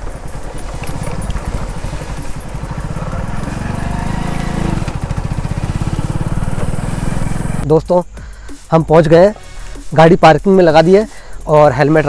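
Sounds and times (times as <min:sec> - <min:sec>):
motorcycle engine running: 0:00.0 - 0:07.7.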